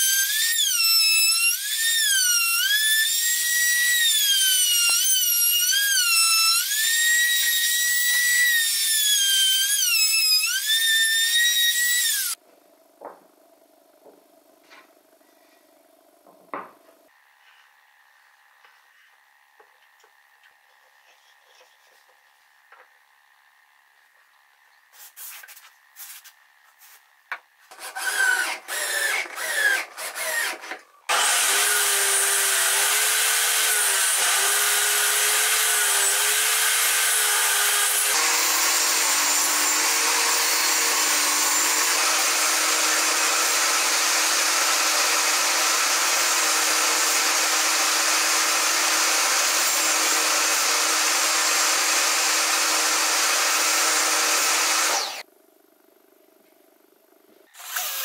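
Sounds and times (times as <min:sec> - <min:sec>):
table saw cutting wood: 0:00.0 - 0:12.4, 0:27.7 - 0:55.3.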